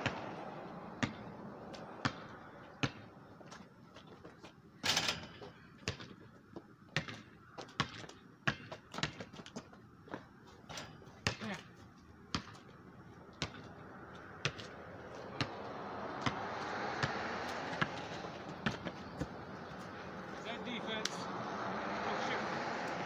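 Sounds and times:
basketball bouncing on pavement: 0:00.0 - 0:04.4, 0:05.4 - 0:21.2
steady rushing noise: 0:14.7 - 0:23.0.

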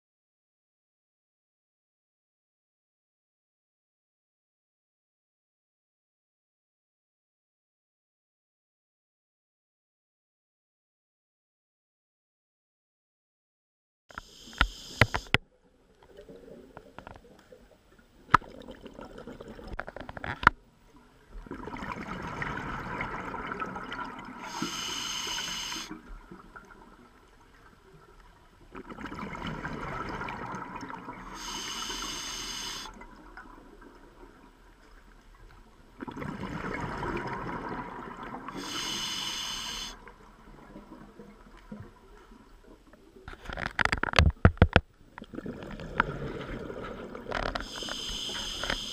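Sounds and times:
regulator hiss: 0:14.1 - 0:15.3, 0:24.4 - 0:25.9, 0:31.3 - 0:32.9, 0:38.6 - 0:40.0, 0:47.6 - 0:48.9
diver exhaling bubbles: 0:36.0 - 0:40.0.

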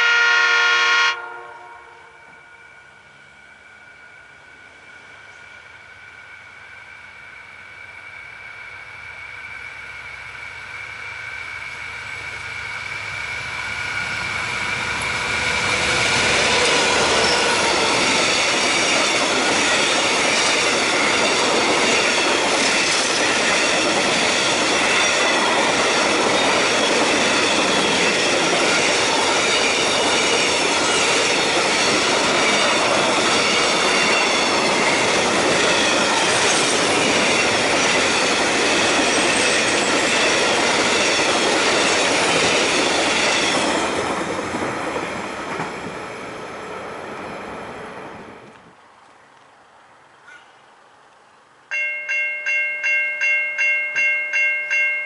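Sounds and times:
freight train rumbling past: 0:00.0 - 0:50.4
high rail whine: 0:01.1 - 0:48.8
wagon wheels squealing: 0:10.6 - 0:44.1.

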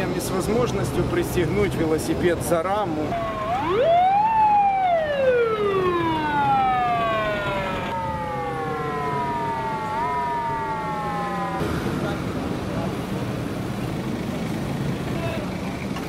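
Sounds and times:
police car siren wailing: 0:03.1 - 0:11.7.

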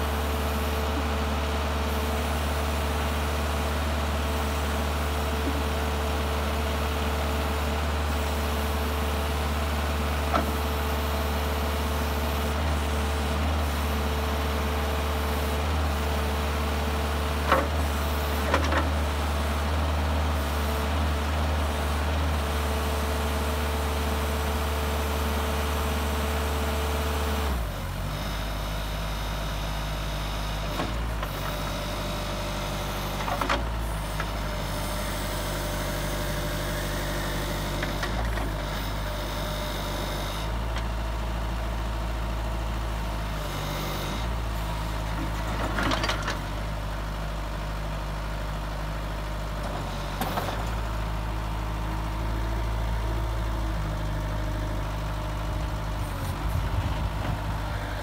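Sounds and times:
diesel engine running: 0:00.0 - 0:58.0
hydraulics moving loader bucket: 0:43.5 - 0:47.7, 0:49.4 - 0:58.0.

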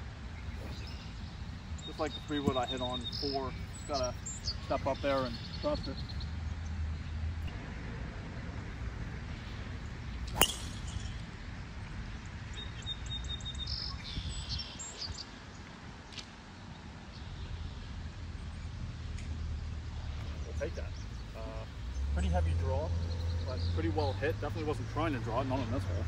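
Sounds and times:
golf club striking ball: 0:10.3 - 0:11.2.

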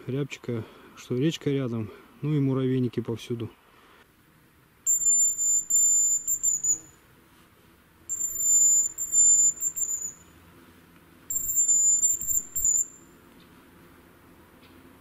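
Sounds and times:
high wavering decoy whistle: 0:04.9 - 0:07.0, 0:08.1 - 0:10.4, 0:11.3 - 0:13.1.

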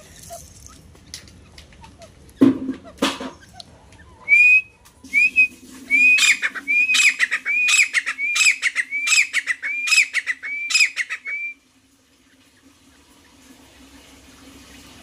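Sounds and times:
bird whistled calls: 0:04.2 - 0:11.6.

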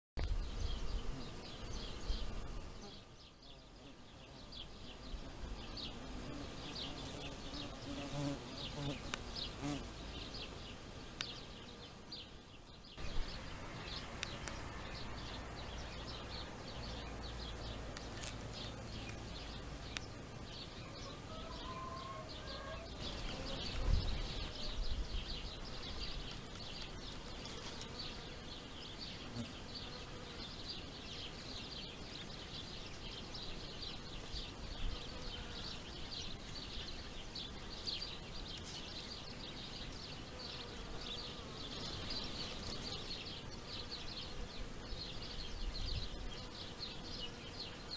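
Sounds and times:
insects buzzing: 0:00.2 - 0:47.9.

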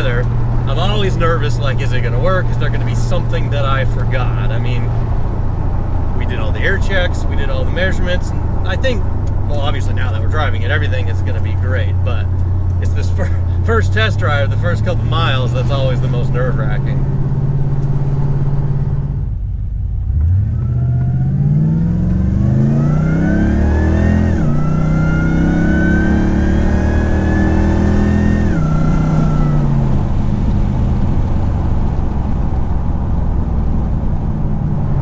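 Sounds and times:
car engine accelerating: 0:00.0 - 0:35.0
supercharger whine: 0:00.0 - 0:35.0.

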